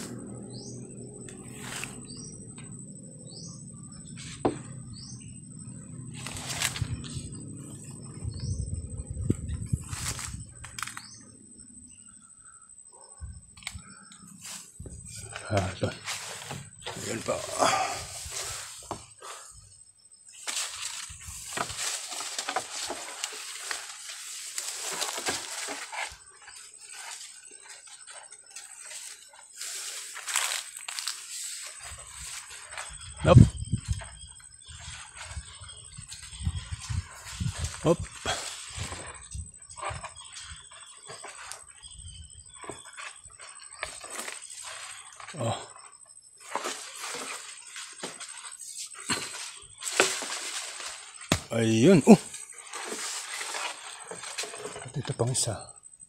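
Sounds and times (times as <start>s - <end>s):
brush rustling: 1.3s - 2.4s, 6.1s - 8.0s, 9.2s - 11.2s, 14.3s - 19.5s, 20.3s - 33.2s, 34.0s - 54.9s
pole clicking against twigs: 9.9s - 11.2s
footsteps: 20.5s - 33.0s.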